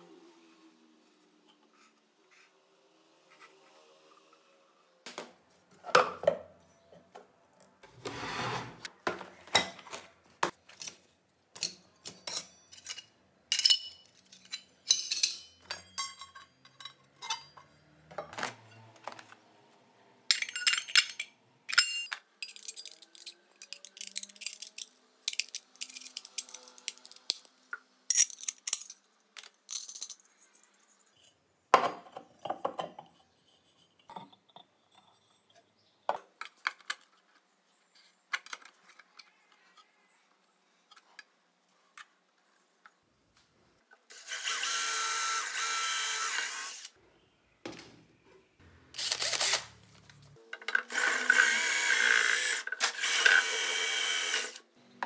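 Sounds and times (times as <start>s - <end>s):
steel parts clinking and rattling: 11.6s - 18.9s, 20.3s - 27.5s, 28.1s - 31.3s.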